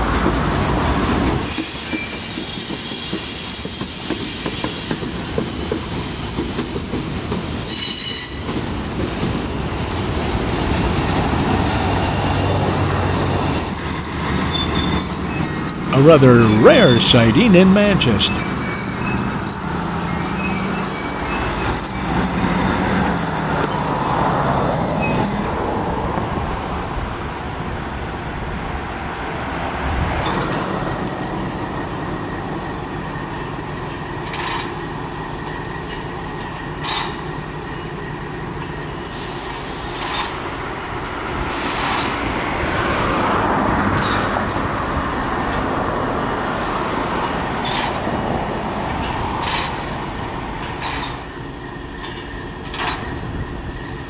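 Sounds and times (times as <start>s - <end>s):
diesel locomotive engine rumble: 0.0s - 54.0s
high wheel squeal: 1.4s - 11.8s, 13.0s - 15.9s, 18.3s - 25.5s.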